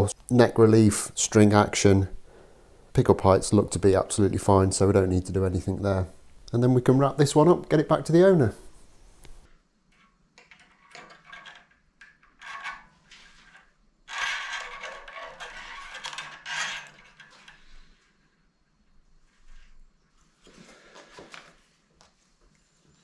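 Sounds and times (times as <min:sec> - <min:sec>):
rustling and scraping: 0:08.6 - 0:18.4, 0:19.1 - 0:23.0.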